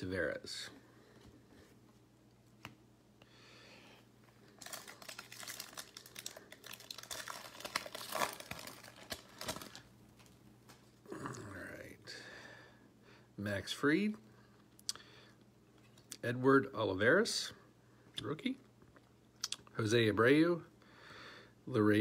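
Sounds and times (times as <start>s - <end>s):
wrapper crinkling and tearing: 4.4s - 10.4s.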